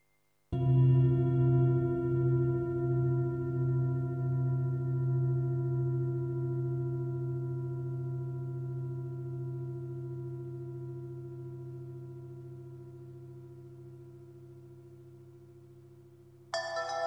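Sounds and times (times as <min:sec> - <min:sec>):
gong ringing tone: 0:16.6 - 0:17.0.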